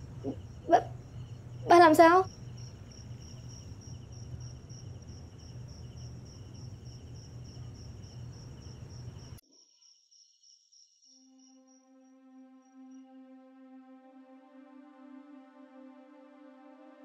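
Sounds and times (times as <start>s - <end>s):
low hum: 0.0s - 9.4s
crickets chirping: 0.0s - 13.2s
soft sustained music tones: 11.2s - 17.0s.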